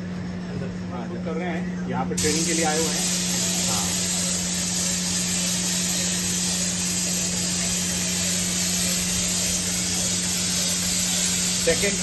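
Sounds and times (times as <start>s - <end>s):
spray gun hissing: 2.2s - 12.0s.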